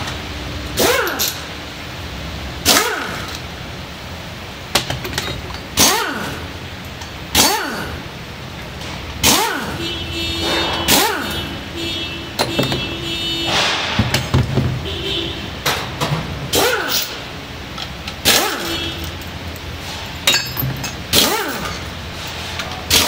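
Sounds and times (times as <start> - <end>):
pneumatic wrench whirring: 0.8 - 1.5, 2.6 - 3.4, 5.8 - 6.4, 9.2 - 9.7, 16.5 - 17.3, 18.1 - 19.0, 21.1 - 22.3.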